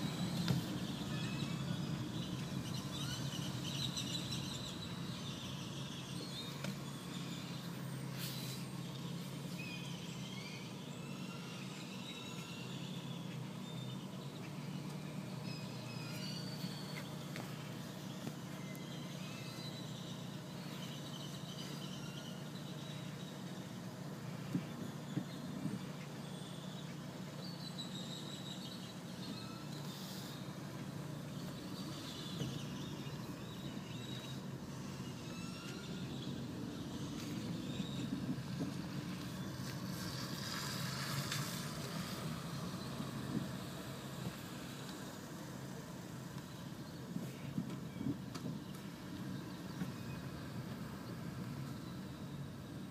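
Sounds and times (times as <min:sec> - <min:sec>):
car engine idling hum: 0:00.0 - 0:52.9
tyre hiss on wet road: 0:07.1 - 0:09.5, 0:29.8 - 0:31.1, 0:38.8 - 0:46.3.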